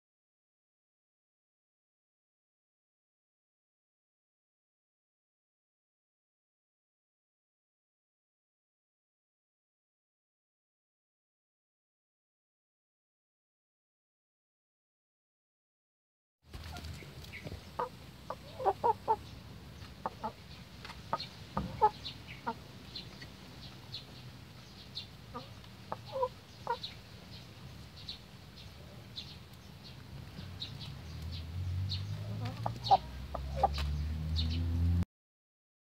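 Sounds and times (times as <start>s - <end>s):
chickens clucking: 16.5s - 34.6s.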